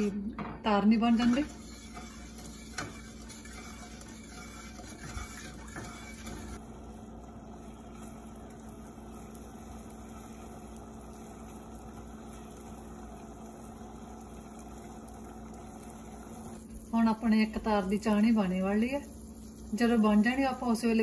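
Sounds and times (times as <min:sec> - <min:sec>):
spatula scraping a saucepan: 0:00.9 - 0:06.6
syrup simmering and bubbling: 0:01.6 - 0:17.2.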